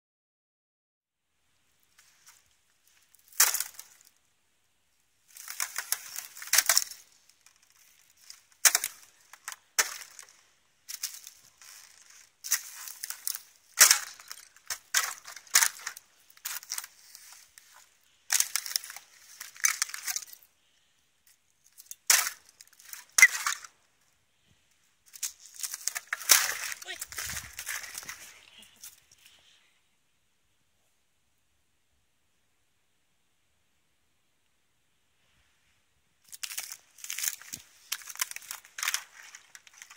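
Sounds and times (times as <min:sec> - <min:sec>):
ice cracking under boot: 0:03.0 - 0:04.2, 0:05.3 - 0:20.5, 0:21.6 - 0:23.7, 0:25.1 - 0:29.2, 0:36.3 - 0:39.9.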